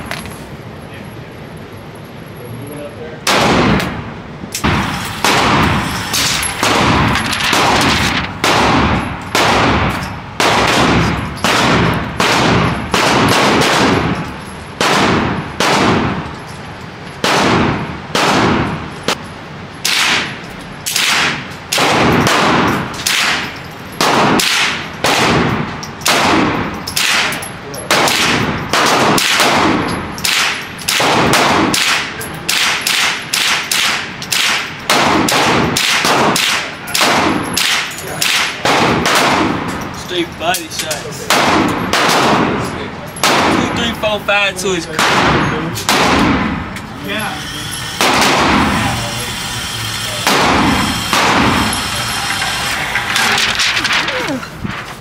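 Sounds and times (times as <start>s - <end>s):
gunshots with echo: 3.2s - 16.3s, 17.2s - 19.2s, 19.8s - 39.8s, 41.2s - 44.0s, 44.9s - 46.7s, 48.0s - 49.2s, 50.2s - 51.9s.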